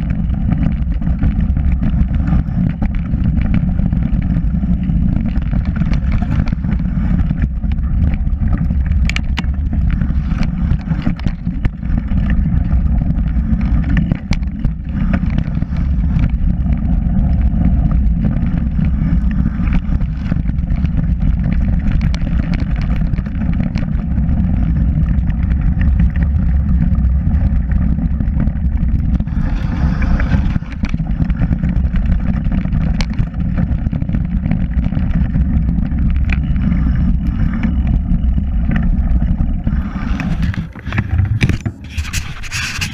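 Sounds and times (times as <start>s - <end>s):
bike clicks and knocks: 0.0s - 29.3s, 40.1s - 42.9s
knobby tyres rolling on dirt: 0.0s - 42.9s
wind rushing over microphone: 0.0s - 42.9s.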